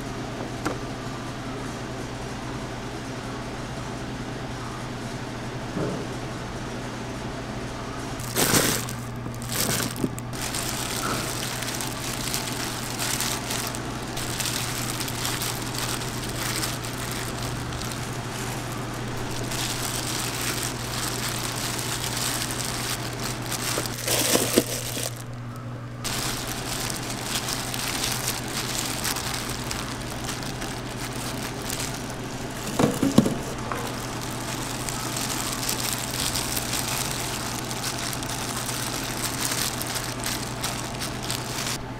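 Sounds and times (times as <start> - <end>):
low machine hum: 0.0 - 41.9
plastic gloves rustling and crinkling: 8.2 - 41.8.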